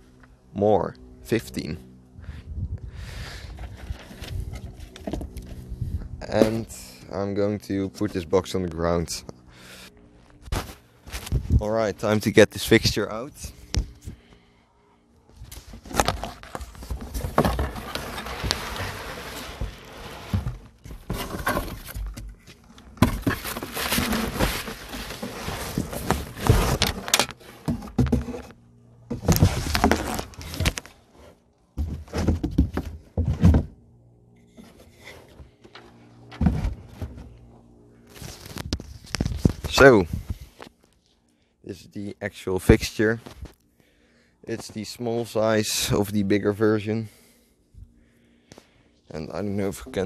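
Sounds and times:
cardboard scraping: 3.5s - 5.6s, 15.5s - 33.7s.

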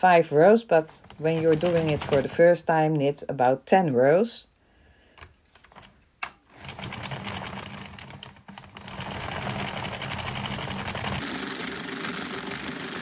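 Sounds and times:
knitting machine clattering: 0.9s - 2.5s, 6.5s - 13.0s.

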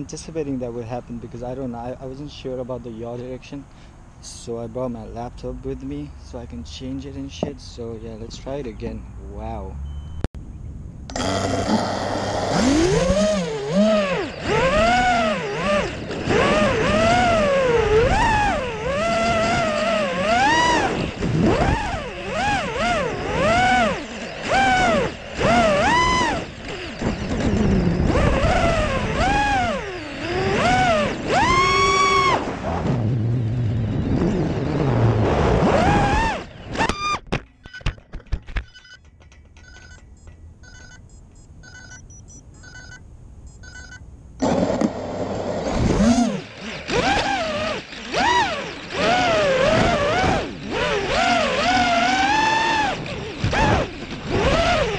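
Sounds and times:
faint beeps: 8.6s - 10.3s, 37.5s - 44.1s
drone motors whining: 11.1s - 38.7s, 44.4s - 54.9s
clatter of sharp knocks: 36.8s - 41.0s.

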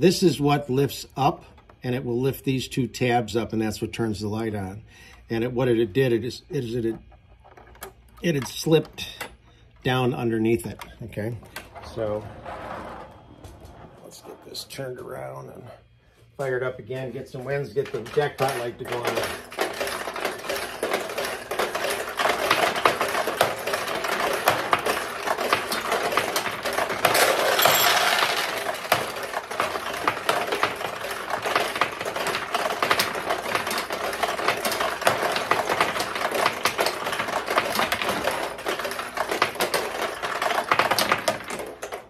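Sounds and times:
steel balls clattering through pins: 17.2s - 42.0s.

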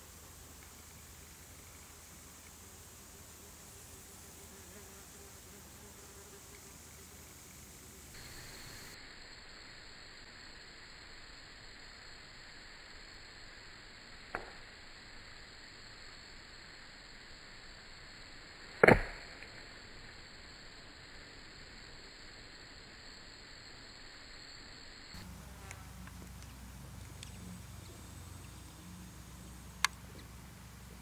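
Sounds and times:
arrow striking target: 18.8s - 19.4s
faint sharp click: 29.8s - 30.3s.

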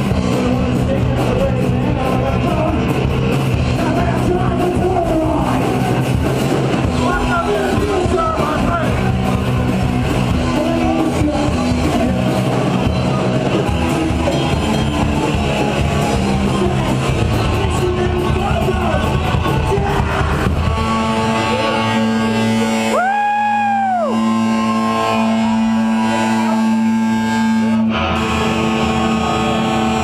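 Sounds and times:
drums: 0.0s - 30.0s
electric guitar: 0.0s - 30.0s
high sustained note: 23.9s - 30.0s.

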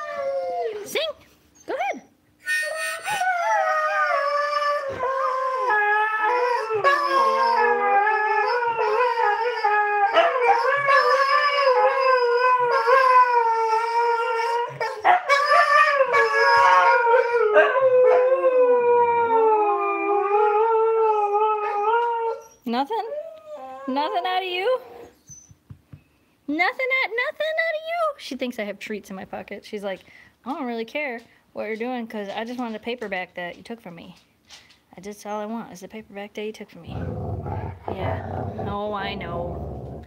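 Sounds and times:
dog howling: 2.6s - 22.5s.

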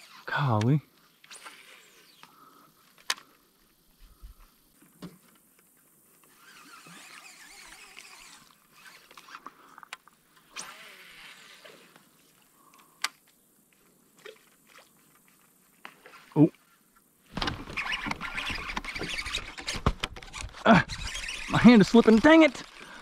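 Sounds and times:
fishing reel and line noise: 0.0s - 23.0s
sharp reel clicks: 17.4s - 23.0s.

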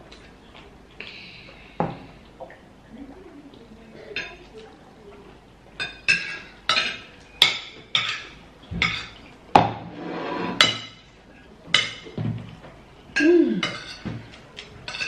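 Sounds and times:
spoons clinking on plates: 5.8s - 9.4s, 13.1s - 15.0s.

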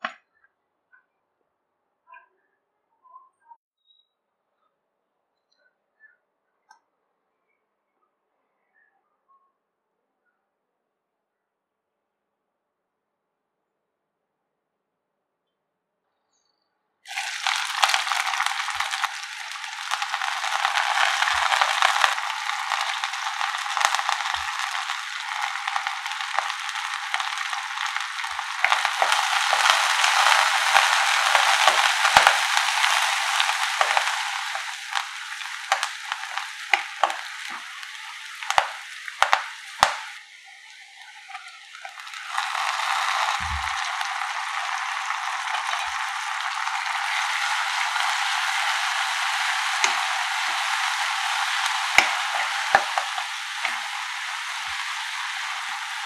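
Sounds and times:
spatula clicking in a wok: 17.1s - 40.2s, 41.0s - 56.0s
onions sizzling in hot oil: 17.1s - 56.0s.

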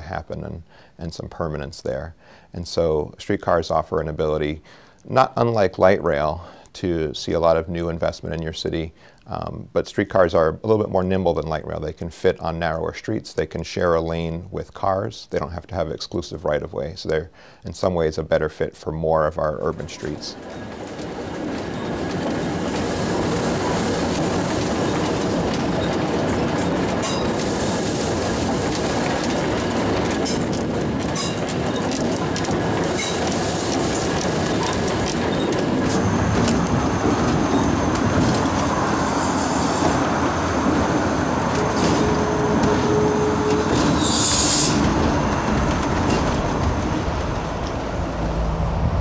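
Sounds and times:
streetcar rolling on rails: 5.2s - 17.2s, 19.0s - 49.0s
wheels clicking over track: 19.4s - 49.0s
wheel squeal: 20.0s - 47.2s.

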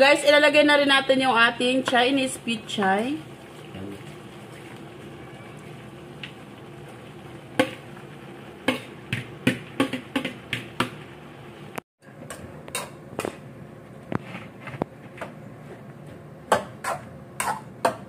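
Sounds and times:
spatula knocking on pan: 8.7s - 11.0s.

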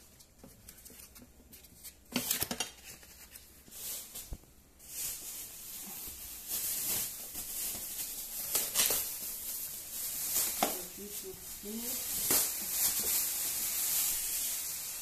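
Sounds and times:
plastic wrap rustling: 0.0s - 15.0s.

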